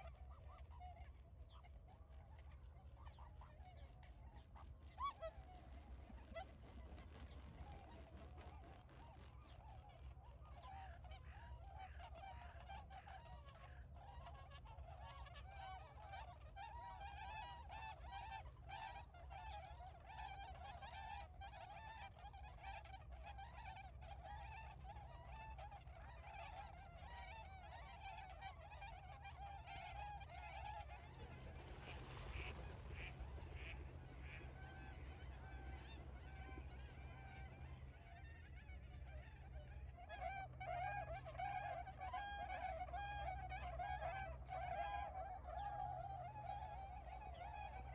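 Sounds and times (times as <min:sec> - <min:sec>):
swans honking: 0:23.4 - 0:47.9
distant birds chorus: 0:28.9 - 0:40.0.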